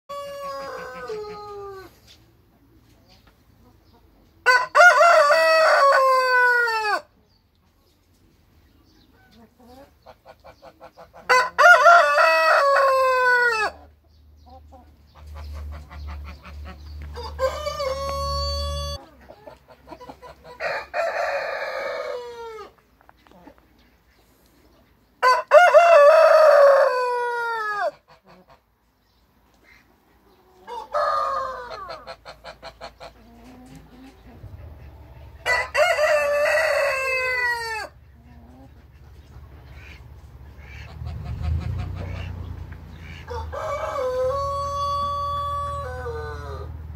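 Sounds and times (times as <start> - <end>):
roosters crowing: 0.1 - 2.1, 4.4 - 7.2, 11.2 - 13.9, 16.0 - 19.1, 20.4 - 22.8, 25.2 - 28.2, 30.6 - 33.8, 35.2 - 38.1, 40.6 - 46.9.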